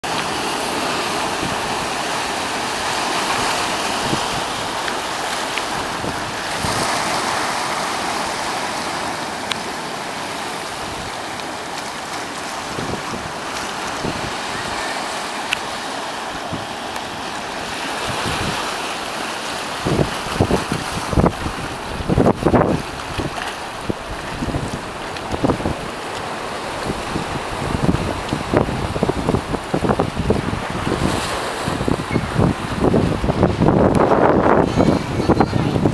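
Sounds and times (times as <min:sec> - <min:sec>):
ocean surf washing over rocks: 0:00.0 - 0:35.9
wind rumble on microphone: 0:02.9 - 0:08.0, 0:12.6 - 0:15.0, 0:16.3 - 0:18.8, 0:19.7 - 0:35.9.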